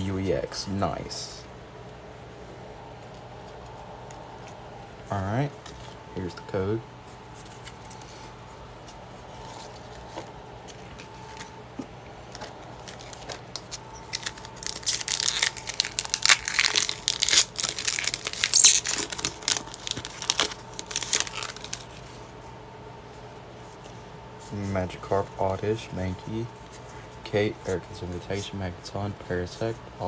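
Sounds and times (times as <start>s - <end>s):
foil wrapper tearing and crinkling: 12.3s - 22.0s.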